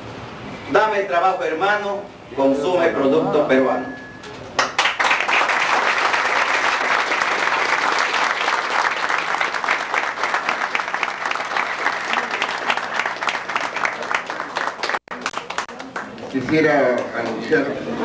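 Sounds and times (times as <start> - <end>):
audience applauding: 4.6 - 18.0.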